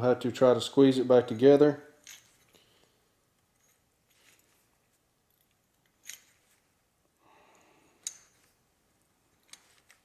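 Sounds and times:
small handling clicks: 9.3s - 10.0s.

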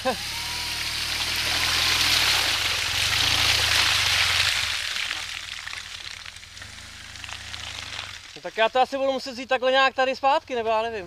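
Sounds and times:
motorcycle engine running low: 0.0s - 8.3s
muddy water splashing: 0.4s - 9.2s.

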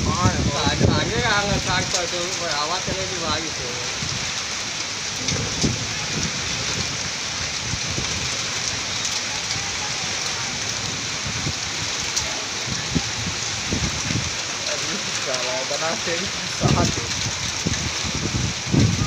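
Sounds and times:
heavy rain pouring: 0.0s - 19.0s
wind gusts on microphone: 0.0s - 19.0s.

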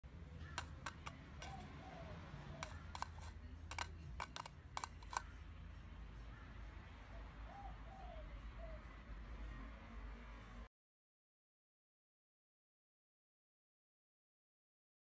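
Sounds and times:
bird beak tapping plastic bowl: 0.5s - 1.7s, 2.6s - 5.3s.

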